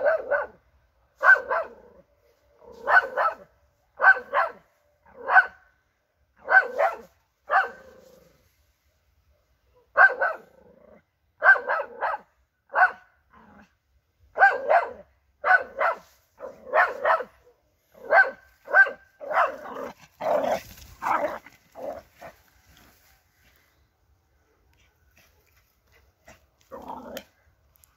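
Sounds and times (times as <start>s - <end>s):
dog barking: 0.0s - 2.0s, 2.8s - 5.7s, 6.4s - 7.9s, 9.7s - 10.6s, 11.4s - 13.2s, 14.3s - 22.4s.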